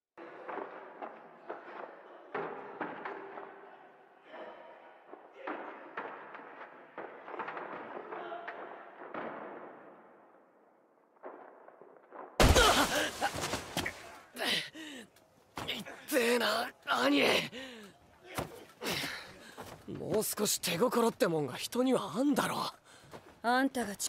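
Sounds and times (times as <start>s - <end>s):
body slamming onto dirt: 12.1s - 14.2s
muffled fight thumps and scuffles: 18.3s - 20.3s.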